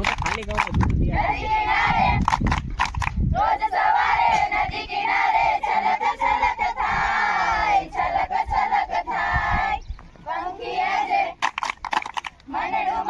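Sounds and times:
hand claps: 0.0s - 1.0s, 2.2s - 3.2s, 11.4s - 12.5s
wind rumble on microphone: 0.0s - 13.0s
women singing in unison: 1.0s - 2.3s, 3.3s - 11.4s, 12.5s - 13.0s.

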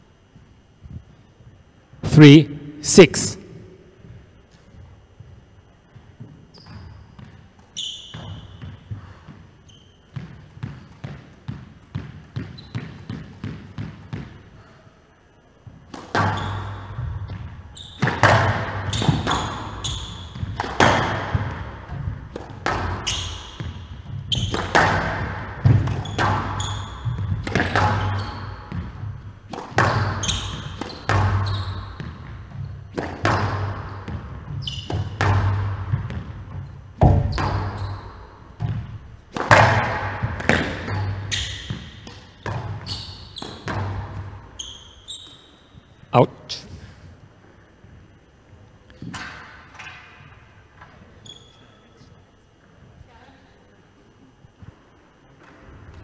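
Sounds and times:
shoe squeaks: 6.0s - 11.4s, 12.3s - 13.4s, 16.2s - 21.4s, 22.6s - 35.4s, 36.5s - 38.8s, 40.6s - 46.0s, 51.0s - 52.1s
squash ball cracks: 20.4s - 23.7s, 24.4s - 31.5s, 32.9s - 34.3s, 38.6s - 42.8s.

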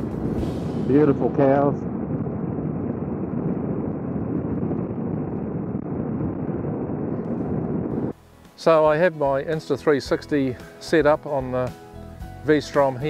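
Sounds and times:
motorcycle road noise: 0.0s - 8.2s
wind rush: 0.0s - 11.7s.

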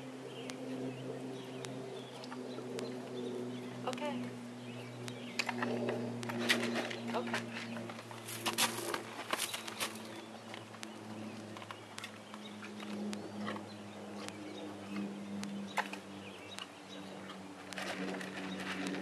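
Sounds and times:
steady low hum: 0.0s - 19.0s
hooves crunching on gravel: 4.8s - 19.0s.

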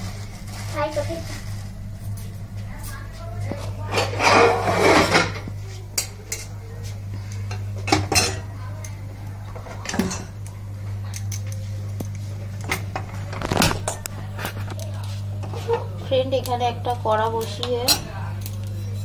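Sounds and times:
steady low hum: 0.0s - 19.0s
metal spoon scraping a pot: 3.8s - 5.4s, 17.8s - 19.0s.

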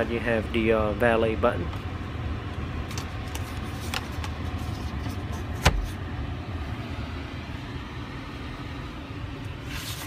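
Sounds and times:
glove box lid thump: 5.5s - 6.0s.

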